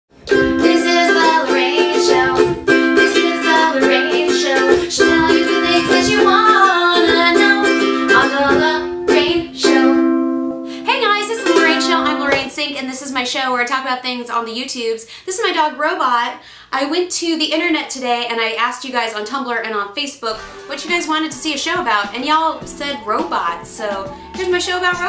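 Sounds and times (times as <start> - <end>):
theme music with plucked strings: 20.4 - 25.0.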